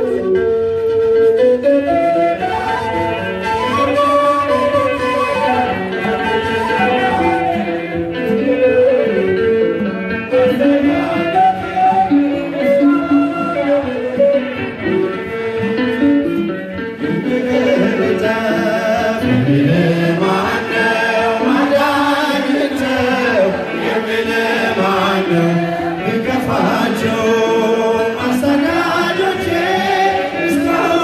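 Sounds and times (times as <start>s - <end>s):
lead singer on a microphone: 2.1s - 31.0s
men singing a hymn: 10.4s - 14.2s, 17.0s - 31.0s.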